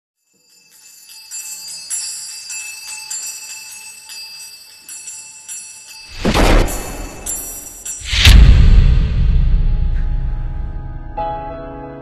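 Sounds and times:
high bell-like chimes: 0.2 - 8.3.

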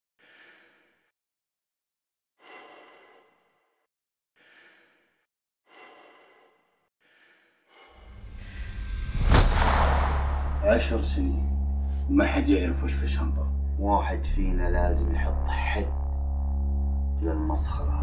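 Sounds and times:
person breathing heavily: 0.2 - 1.1, 2.4 - 3.7, 4.4 - 8.9
low rumbling swell: 8.1 - 18.0.

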